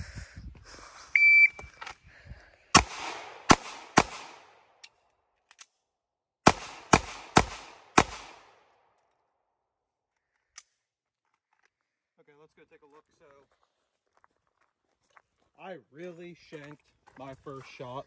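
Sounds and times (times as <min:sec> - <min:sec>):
shot timer beep: 0:01.2 - 0:01.7
pistol shots: 0:02.8 - 0:04.7, 0:06.4 - 0:08.7.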